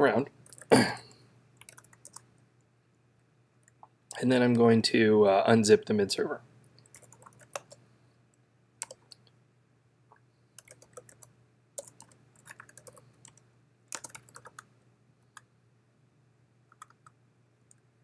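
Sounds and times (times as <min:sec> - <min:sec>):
keyboard typing clicks: 0:01.6 - 0:02.3, 0:06.8 - 0:07.8, 0:08.8 - 0:09.2, 0:10.6 - 0:14.7, 0:16.7 - 0:17.2.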